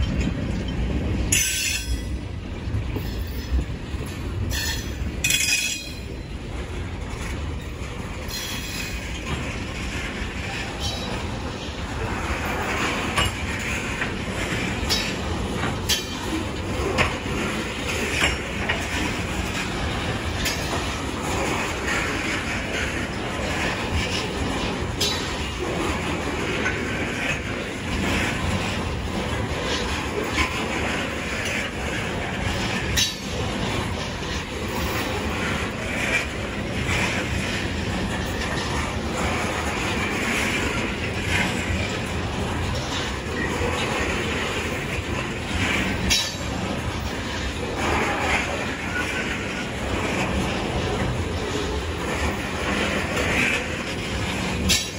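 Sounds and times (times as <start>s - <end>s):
sharp clanks and clicks: 0.0s - 54.9s
train wheels rumbling on rail: 0.0s - 54.9s.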